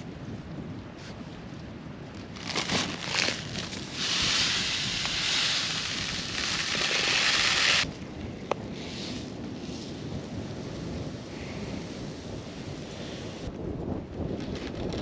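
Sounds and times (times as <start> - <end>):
seed bag rustling: 2.2 - 7.8
seeds pouring into plastic bowl: 3.5 - 7.8.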